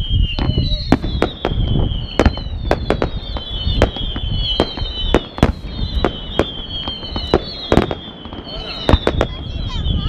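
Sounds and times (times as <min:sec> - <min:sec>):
falling firework whistles: 0:00.0 - 0:10.0
firework bangs: 0:00.0 - 0:10.0.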